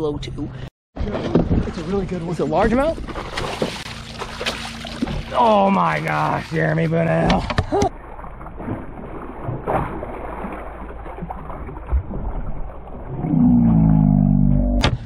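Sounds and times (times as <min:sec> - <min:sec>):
fish thrashing and splashing: 0:02.9 - 0:13.2.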